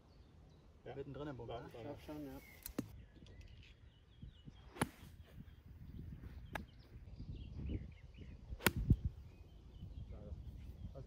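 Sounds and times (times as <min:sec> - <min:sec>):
wind rumbling on microphone: 0:02.4 - 0:11.0
golf club striking ball: 0:08.6 - 0:09.0.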